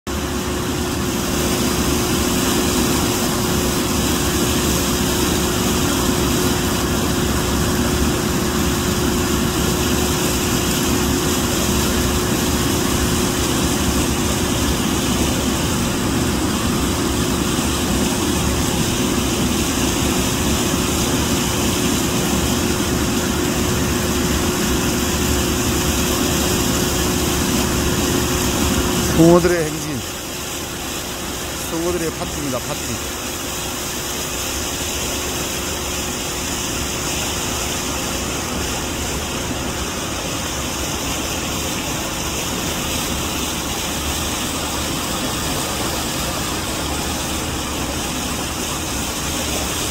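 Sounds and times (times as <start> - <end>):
mechanical hum: 0.1 - 49.9
rushing water churning: 0.1 - 49.9.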